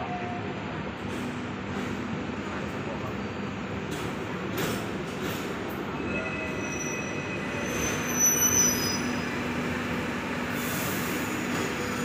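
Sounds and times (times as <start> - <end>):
tram rumbling on rails: 0.0 - 12.0
high-pitched wheel squeal: 6.0 - 9.4.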